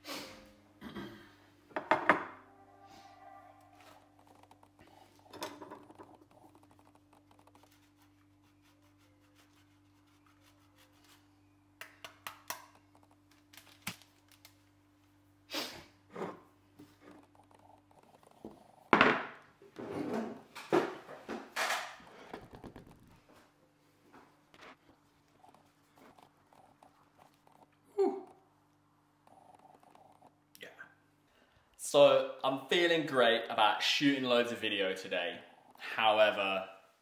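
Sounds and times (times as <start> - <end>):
cheese grating: 6.0 - 11.5.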